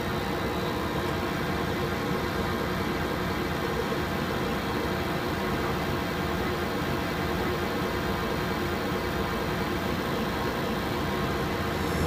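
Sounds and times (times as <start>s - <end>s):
low hum: 11.4s - 12.0s
cockpit air rushing: 11.5s - 12.0s.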